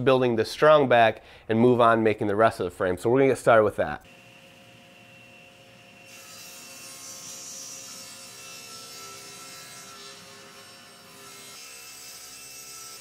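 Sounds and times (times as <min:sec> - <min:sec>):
saw blade cutting wood: 0:04.1 - 0:13.0
table saw motor: 0:04.1 - 0:13.0.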